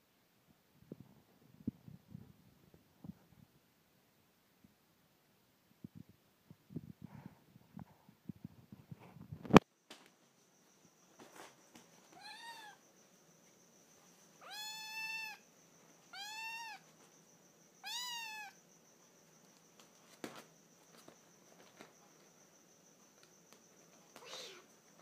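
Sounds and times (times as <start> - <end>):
kitten meowing: 12.2 - 12.8, 14.4 - 15.4, 16.1 - 16.8, 17.8 - 18.6, 24.2 - 24.7.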